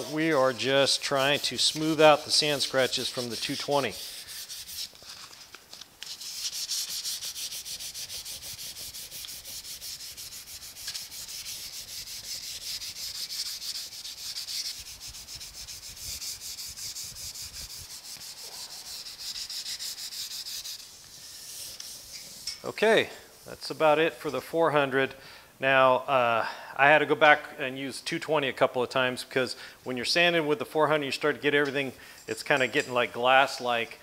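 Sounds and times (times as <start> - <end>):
sandpaper rubbing on metal: 0.0 - 22.7.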